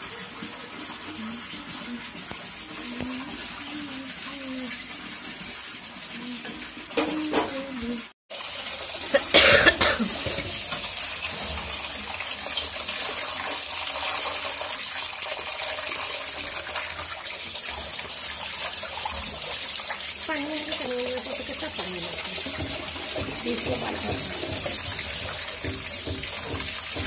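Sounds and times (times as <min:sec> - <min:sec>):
tap water running into steel bowl: 0:00.0 - 0:27.0.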